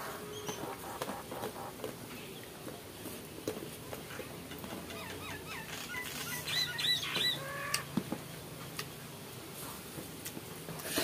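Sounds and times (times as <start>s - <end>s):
bird chirping: 0.1s - 2.5s, 4.8s - 7.8s.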